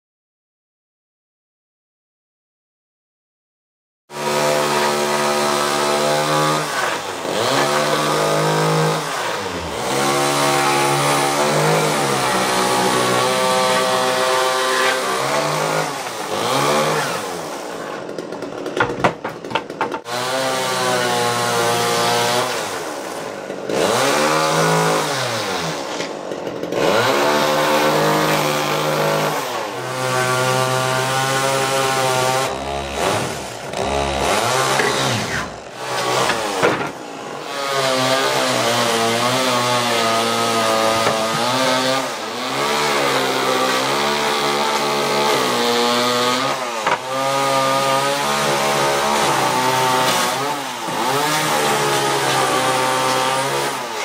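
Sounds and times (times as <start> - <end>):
chainsaw engine revving: 4.1 - 18.8, 19.4 - 54.0.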